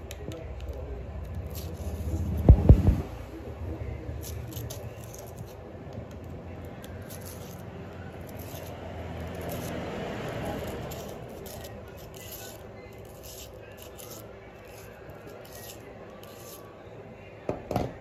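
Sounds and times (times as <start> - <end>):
small metal clicks and scrapes: 0.1 - 2.2, 4.2 - 5.6, 6.6 - 16.7.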